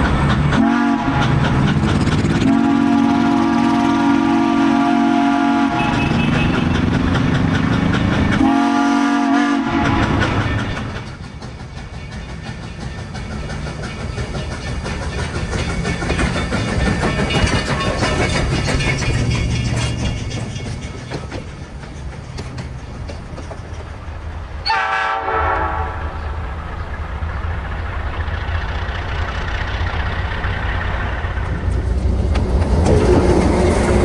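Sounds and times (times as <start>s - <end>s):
wheels clattering over rail joints: 0.0s - 3.7s, 5.8s - 24.9s, 26.2s - 34.0s
train rumbling past: 0.0s - 34.0s
train horn blasts: 0.6s - 1.4s, 2.4s - 6.8s, 8.4s - 10.3s, 24.6s - 26.2s.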